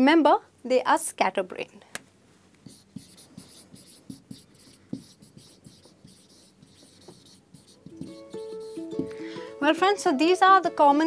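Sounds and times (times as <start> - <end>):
marker writing on whiteboard: 2.6 - 9.1.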